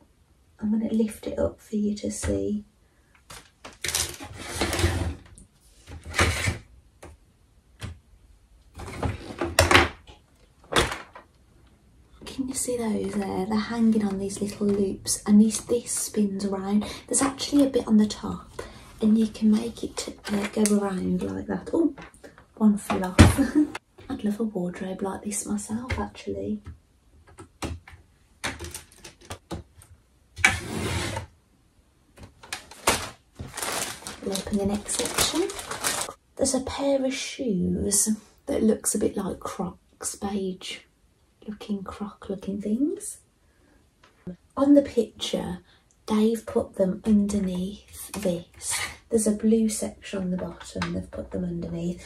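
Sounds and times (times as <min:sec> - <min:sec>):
plastic parts knocking and scraping: 0:08.7 - 0:11.4, 0:25.8 - 0:31.3, 0:32.2 - 0:36.1
plastic parts clicking: 0:27.2 - 0:29.9
plastic bag rustle: 0:32.3 - 0:36.2.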